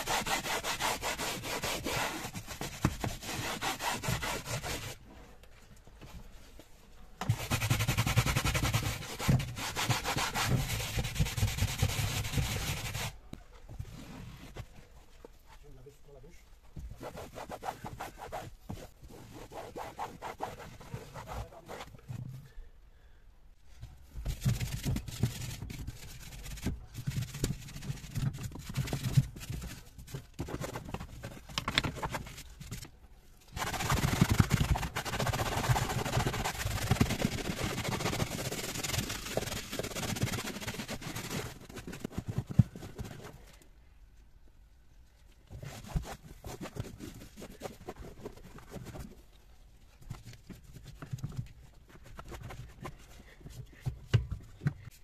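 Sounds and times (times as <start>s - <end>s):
brush scrubbing rubber floor mat: 0.0s - 5.0s, 7.3s - 13.2s, 33.6s - 43.4s.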